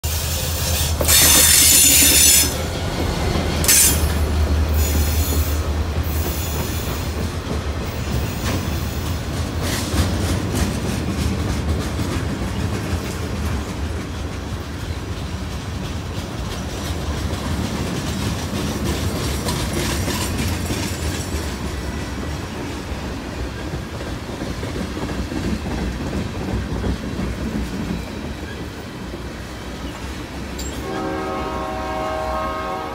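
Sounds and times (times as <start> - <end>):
train cars rolling and clicking: 0.0 - 32.8
train wheels squealing: 0.1 - 2.7, 3.6 - 7.3, 27.6 - 29.0.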